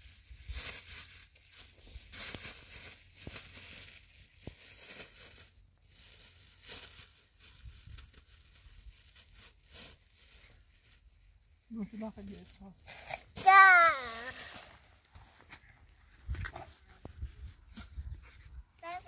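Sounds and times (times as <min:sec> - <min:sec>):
plastic bag crinkling: 0:00.4 - 0:14.8.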